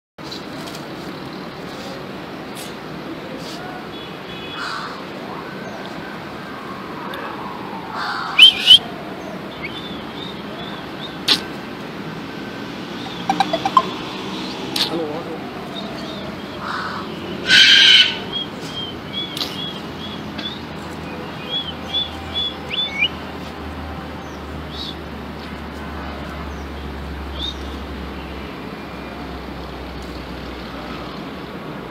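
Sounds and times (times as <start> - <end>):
short high chirps: 13.1 - 14.0
cockatoo screeching: 16.6 - 18.2.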